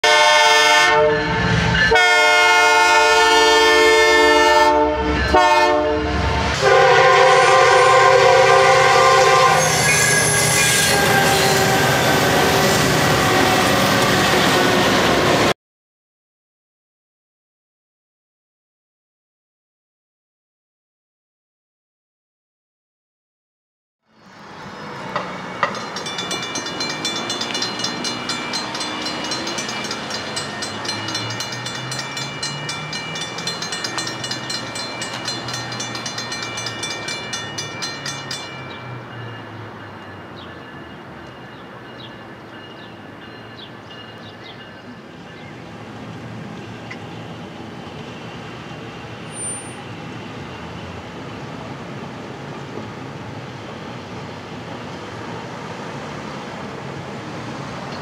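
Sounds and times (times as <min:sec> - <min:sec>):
railroad crossing bells ringing: 0:00.0 - 0:15.1, 0:24.6 - 0:51.0.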